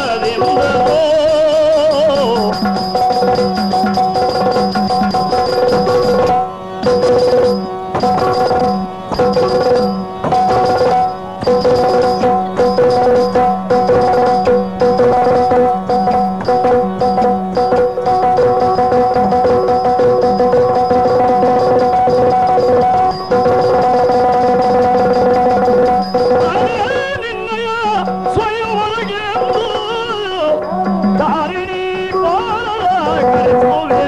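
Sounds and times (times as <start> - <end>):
person singing with wavering pitch: 0.0 - 5.4, 25.9 - 34.0
steady drone: 0.0 - 33.9
hand drumming: 0.0 - 34.0.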